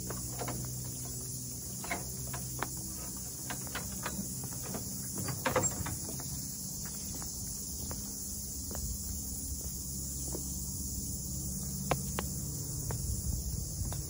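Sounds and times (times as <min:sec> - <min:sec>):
footsteps on wooden boards: 0:00.0 - 0:10.5
crickets and insects chirping: 0:00.0 - 0:14.0.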